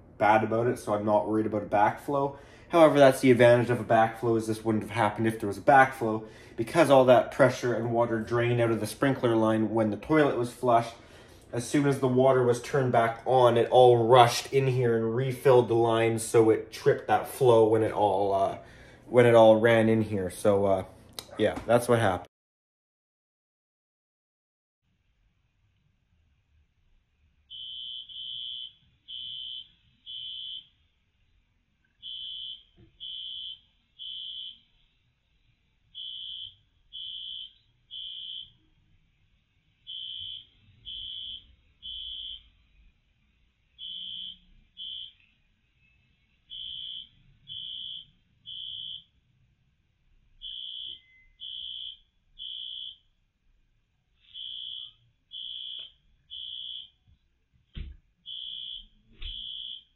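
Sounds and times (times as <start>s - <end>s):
fire alarm beeping: 27.5s - 30.8s, 32.0s - 34.8s, 35.9s - 38.7s, 39.8s - 42.6s, 43.8s - 49.2s, 50.4s - 53.1s, 54.2s - 57.0s, 58.2s - 59.9s.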